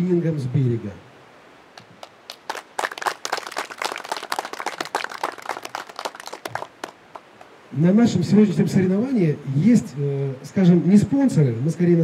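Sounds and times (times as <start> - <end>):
people clapping: 1.8 - 7.5.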